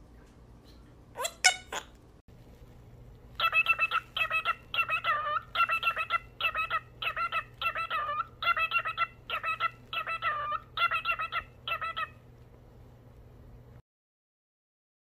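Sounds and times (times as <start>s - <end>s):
cockatiel warbling calls: 1.2s - 2.0s, 3.4s - 12.2s
parakeet chirping: 1.2s - 2.0s, 3.3s - 12.3s.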